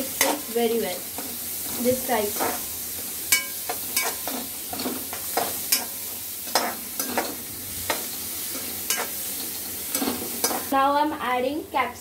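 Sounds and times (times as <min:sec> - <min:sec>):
metal spoon scraping a pan: 0:00.0 - 0:00.6, 0:01.2 - 0:02.7, 0:03.3 - 0:10.7
food sizzling in a pan: 0:00.0 - 0:11.9.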